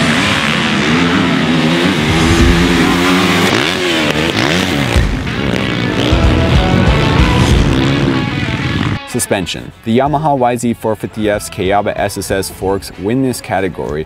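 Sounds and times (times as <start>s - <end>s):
motocross bike engine revving: 0.0s - 9.3s.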